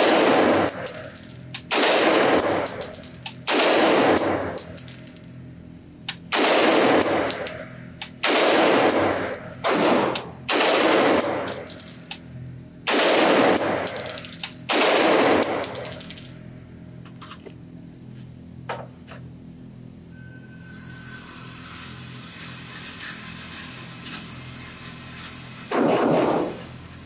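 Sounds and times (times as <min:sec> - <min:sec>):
rifle shots echoing indoors: 0:00.0 - 0:01.0, 0:01.7 - 0:02.8, 0:03.4 - 0:04.6, 0:06.3 - 0:07.6, 0:08.2 - 0:11.6, 0:12.8 - 0:15.8, 0:25.7 - 0:26.6.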